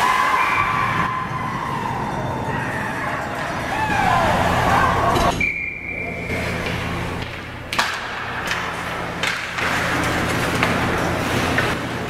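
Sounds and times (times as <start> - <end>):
sticks and puck cracking: 6.4 - 11.8.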